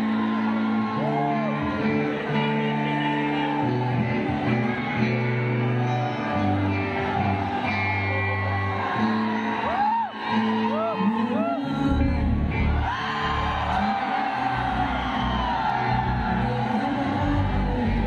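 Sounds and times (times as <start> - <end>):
guitars: 0.0 - 18.0
bass line: 11.8 - 13.8, 14.5 - 18.0.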